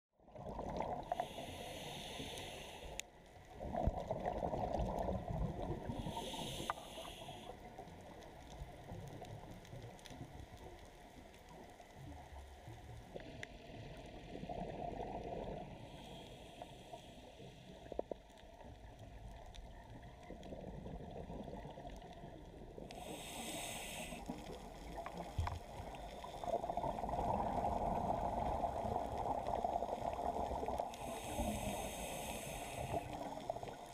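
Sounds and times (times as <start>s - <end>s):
gurgling bubbles: 0.2s - 1.4s, 3.5s - 6.6s, 13.2s - 16.0s, 19.0s - 33.9s
diver breathing through regulator: 1.0s - 3.0s, 5.8s - 7.6s, 15.7s - 18.0s, 22.9s - 24.6s, 30.7s - 33.5s
high hiss: 1.1s - 3.0s, 6.0s - 7.5s, 22.9s - 24.5s, 30.9s - 33.5s.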